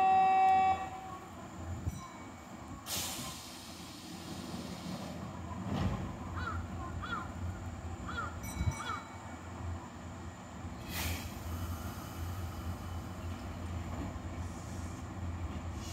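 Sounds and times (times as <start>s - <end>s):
electric train rumbling: 0.0s - 15.9s
short hiss: 2.9s - 5.2s, 10.8s - 13.0s
crow cawing: 6.4s - 7.3s, 8.1s - 9.1s.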